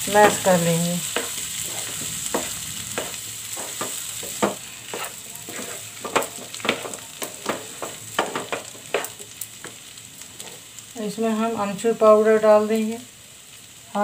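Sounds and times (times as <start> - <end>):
oil sizzling: 0.0 - 14.0
wooden spatula scraping a pan: 0.1 - 10.8.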